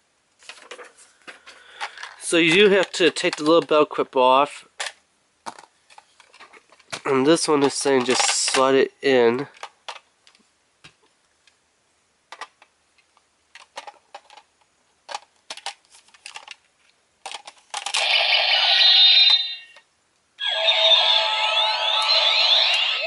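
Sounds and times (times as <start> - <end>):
plastic toy pieces clicking: 7.6 - 8.7, 13.5 - 14.5, 15.1 - 16.6, 17.2 - 18.0
electronic toy sound effects: 17.9 - 19.8, 20.4 - 23.0.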